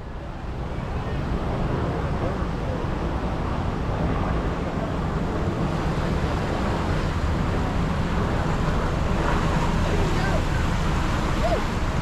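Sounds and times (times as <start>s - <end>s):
wind on microphone: 0.0s - 12.0s
water rushing down slide: 9.4s - 12.0s.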